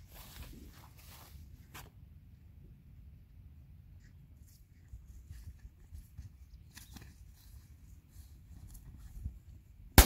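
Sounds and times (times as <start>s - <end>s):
rustling steps through crops: 0.0s - 2.0s.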